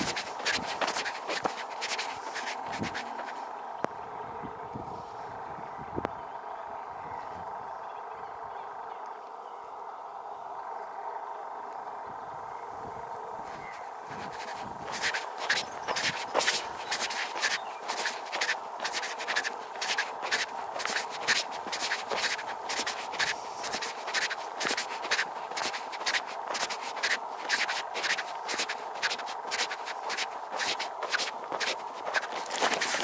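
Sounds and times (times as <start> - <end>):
footsteps crunching on gravel: 0.0 - 3.4, 13.5 - 33.0.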